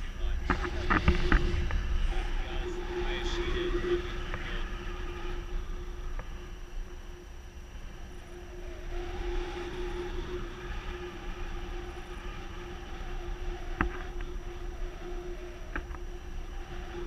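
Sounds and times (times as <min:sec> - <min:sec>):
constant low hum: 0:00.0 - 0:17.0
wind buffeting microphone: 0:00.0 - 0:17.0.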